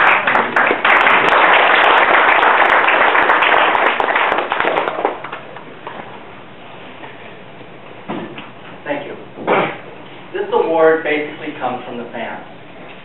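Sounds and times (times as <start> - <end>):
audience applause: 0.0 - 5.6.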